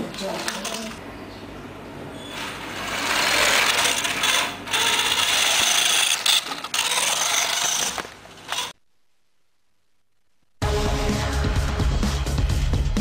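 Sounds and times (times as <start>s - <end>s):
toy car motor whirring: 2.3s - 8.8s.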